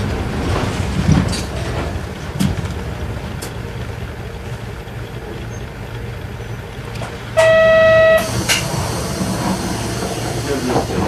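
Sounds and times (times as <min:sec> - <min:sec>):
bus diesel engine running: 0:00.0 - 0:11.0
loud single-pitched tone: 0:07.4 - 0:08.6.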